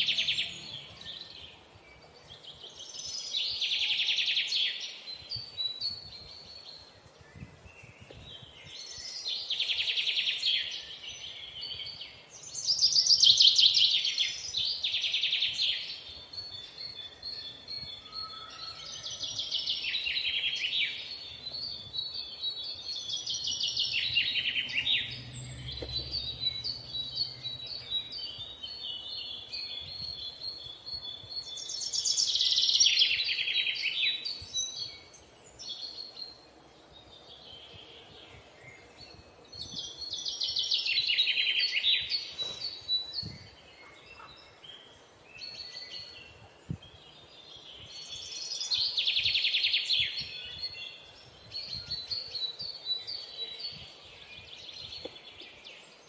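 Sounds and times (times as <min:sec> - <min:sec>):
bird trilling chirps: 0:22.7 - 0:29.6.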